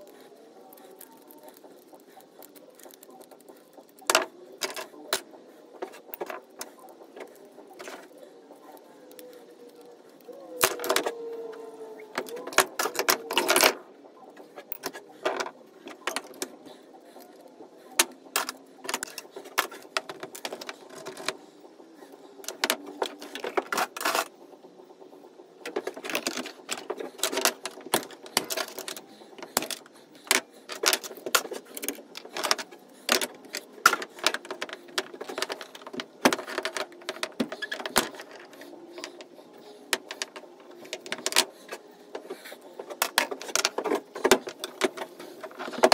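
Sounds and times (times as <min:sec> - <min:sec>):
metal parts clinking on wood: 0:04.0 - 0:05.2, 0:05.8 - 0:06.7, 0:25.6 - 0:39.2.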